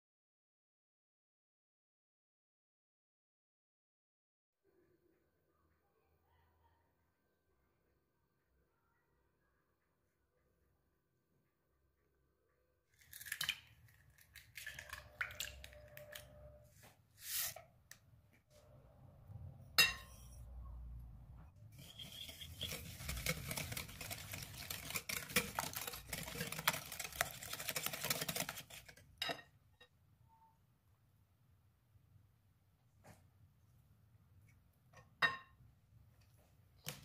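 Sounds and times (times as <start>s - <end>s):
wire whisk beating in glass bowl: 21.8s - 29.0s.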